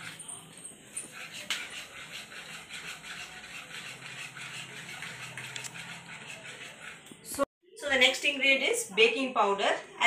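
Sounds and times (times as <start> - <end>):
whisk beating batter in bowl: 0.0 - 7.5.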